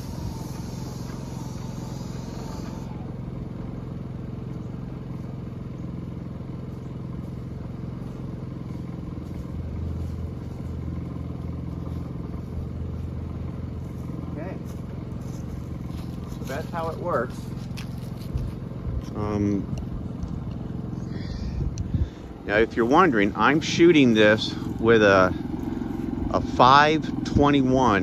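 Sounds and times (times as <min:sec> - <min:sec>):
paint sprayer hiss: 0:00.0 - 0:03.1
deep hum: 0:00.0 - 0:28.0
generator engine running: 0:00.0 - 0:28.0.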